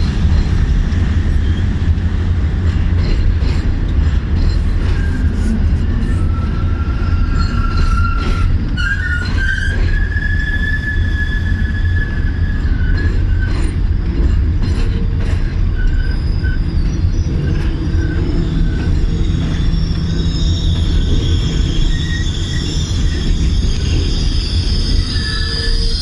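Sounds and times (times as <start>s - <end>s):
train wheels rumbling on rail: 0.0s - 26.0s
high-pitched wheel squeals: 4.4s - 14.3s, 15.6s - 26.0s.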